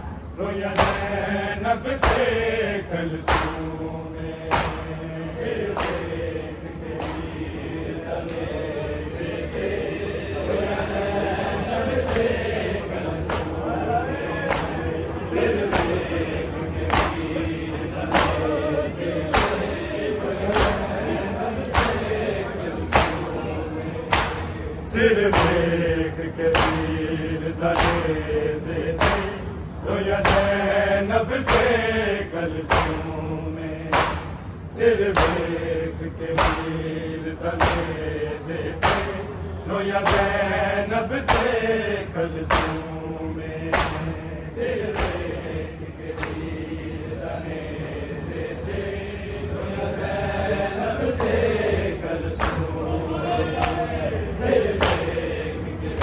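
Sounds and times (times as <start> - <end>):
men chanting in unison: 0.0 - 56.0
hand slaps on chest: 3.3 - 3.6, 4.5 - 4.9, 32.7 - 33.0, 33.9 - 34.3, 36.4 - 36.7, 37.6 - 37.9, 42.5 - 42.8, 43.7 - 44.1, 44.9 - 45.2.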